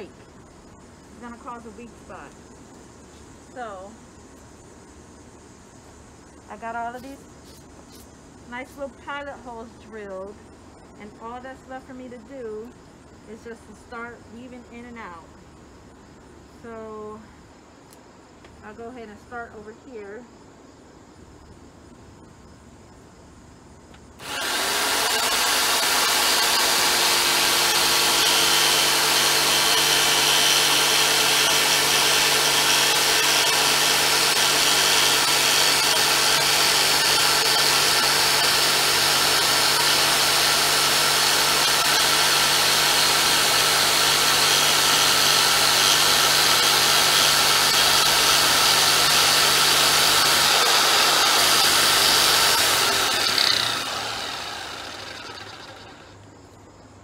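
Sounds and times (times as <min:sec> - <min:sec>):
jigsaw cutting wood board: 0:24.2 - 0:56.2.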